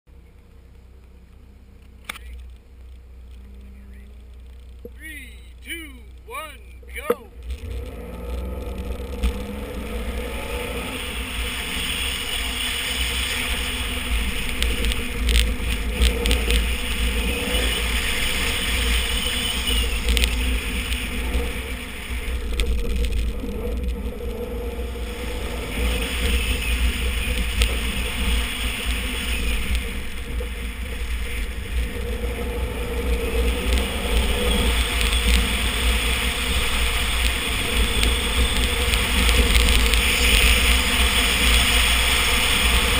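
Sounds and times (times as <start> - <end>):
rally car engine revving: 0.1 - 42.9
tyres on loose dirt: 0.1 - 42.9
wind rumble on microphone: 7.3 - 42.9
stones clicking against car body: 14.3 - 17.0, 19.8 - 21.4.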